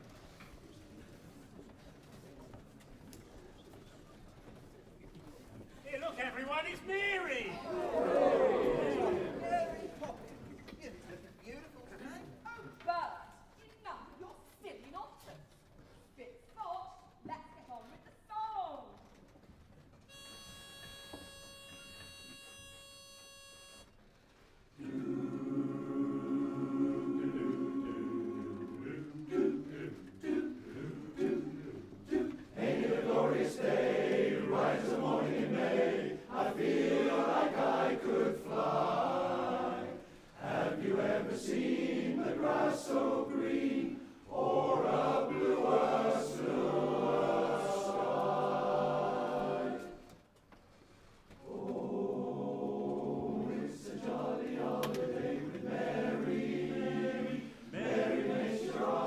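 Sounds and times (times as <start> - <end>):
chorus singing in close harmony: 7.7 - 9.5, 24.8 - 50.2, 51.4 - 59.0.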